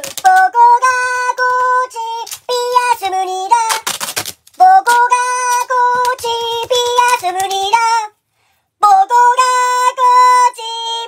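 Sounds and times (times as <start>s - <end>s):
high-pitched child-like singing: 0.0s - 3.9s, 4.6s - 8.2s, 8.8s - 11.0s.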